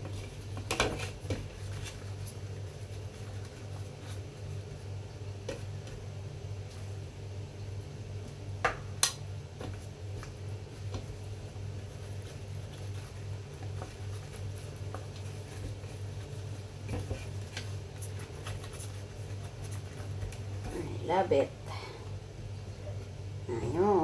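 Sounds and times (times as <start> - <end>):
leaves being handled: 0.0 - 7.1, 9.6 - 20.9
steady low hum: 0.0 - 24.0.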